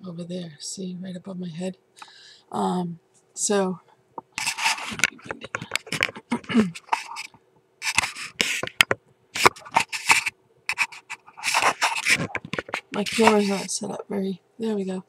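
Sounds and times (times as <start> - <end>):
faint steady hum: 0.0 - 15.0
camera handling noise: 4.3 - 13.6.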